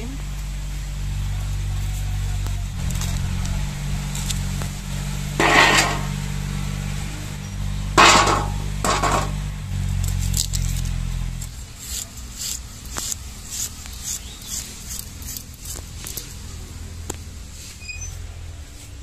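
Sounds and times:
low steady hum: 0.0 - 17.6.

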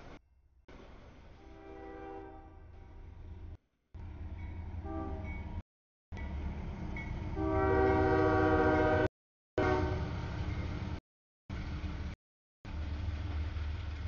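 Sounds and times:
low rumble of train: 0.0 - 14.0
locomotive air horn: 1.4 - 3.0, 4.8 - 5.3, 7.3 - 10.1.

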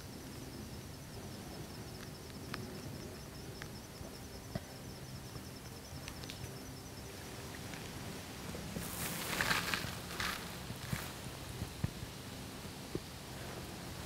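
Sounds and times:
insect trill: 0.0 - 11.8
ticks and rustles in leaf litter: 7.5 - 12.5.

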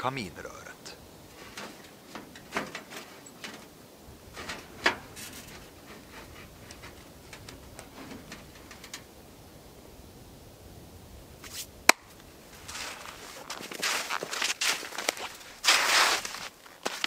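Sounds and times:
small clicks of wire mesh: 4.4 - 9.1
cloth rustling: 12.6 - 17.0.

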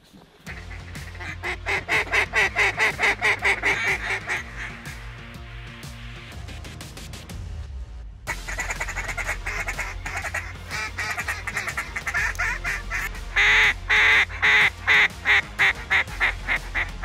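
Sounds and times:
duck call quacks: 0.5 - 5.0, 8.3 - 17.0.

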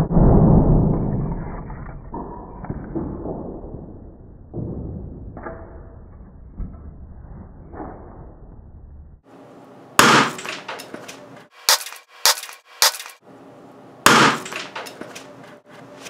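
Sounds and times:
capacitor bursting bang: 14.0 - 14.6.

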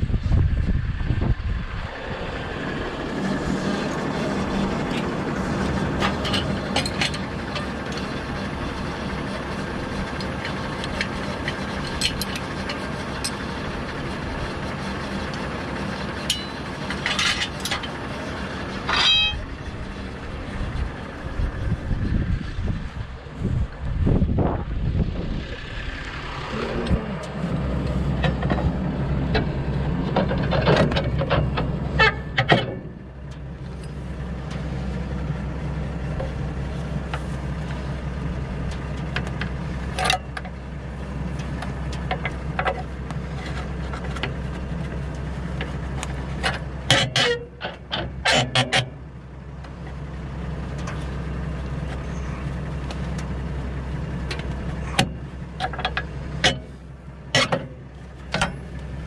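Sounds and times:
tractor engine idling: 0.0 - 59.0
metal clicks and clanks: 6.0 - 8.1, 10.1 - 13.4, 16.2 - 18.0, 27.2 - 34.6, 38.6 - 40.6, 54.3 - 58.9.

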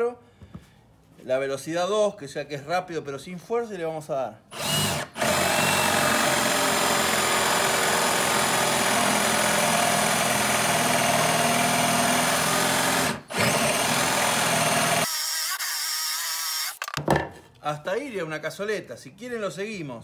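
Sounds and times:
drill boring into wood: 4.5 - 16.9.

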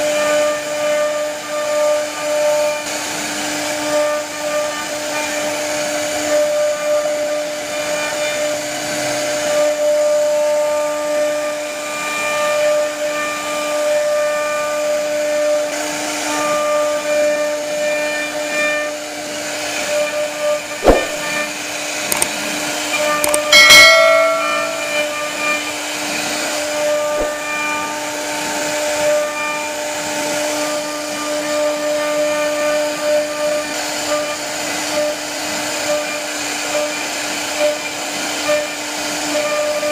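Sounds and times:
sharp knocks: 20.8 - 21.4, 23.2 - 25.4.

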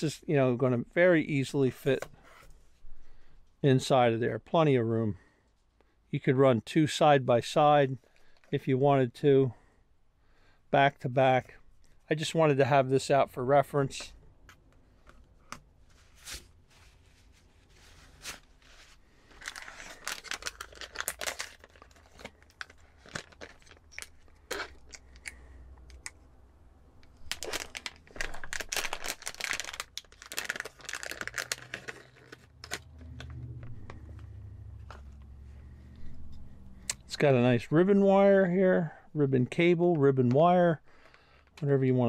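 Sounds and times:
plastic packaging crinkling: 18.0 - 25.2, 27.0 - 33.9.

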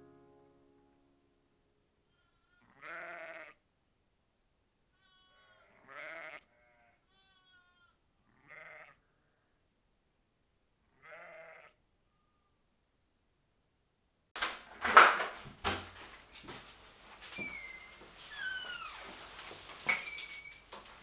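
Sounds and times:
lambs bleating: 2.1 - 3.6, 4.9 - 9.0, 10.9 - 11.8
sheep bleating: 2.1 - 3.6, 4.9 - 9.1, 10.9 - 11.8.

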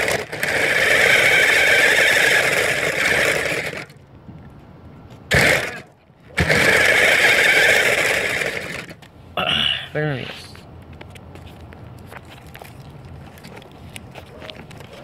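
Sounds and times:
toy car electric motor and wheels: 0.0 - 4.0, 5.3 - 9.1.

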